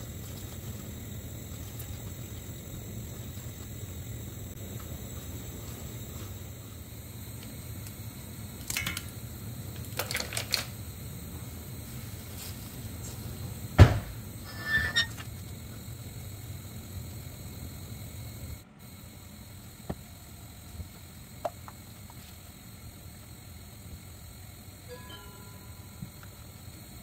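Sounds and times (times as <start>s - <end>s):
spatula scraping a metal pot: 14.4s - 15.2s.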